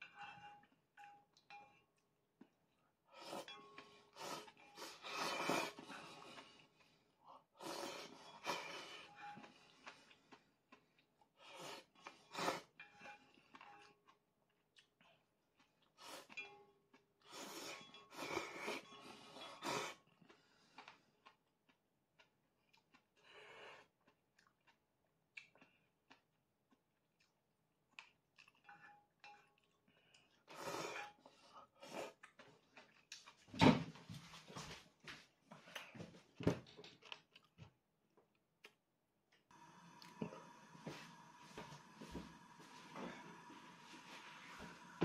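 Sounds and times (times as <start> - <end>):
person slurping noodles: 4.2 - 6.0, 7.6 - 8.9, 11.5 - 12.7, 19.4 - 20.0
person chewing: 7.6 - 18.8, 19.4 - 33.5, 37.0 - 40.3.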